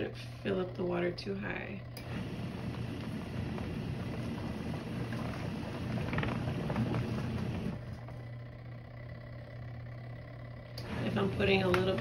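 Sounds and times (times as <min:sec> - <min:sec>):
washing machine motor hum: 0:00.0 - 0:12.0
water and clothes churning: 0:02.0 - 0:08.0.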